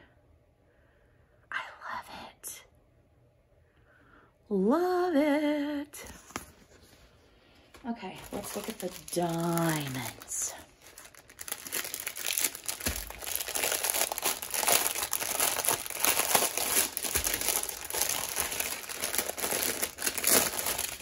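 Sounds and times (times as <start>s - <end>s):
plastic bag crinkling: 8.0s - 21.0s.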